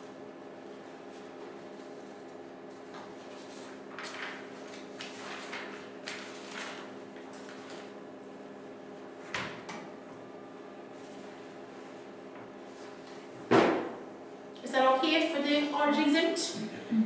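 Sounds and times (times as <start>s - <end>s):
rustling and handling sounds: 1.0s - 8.0s.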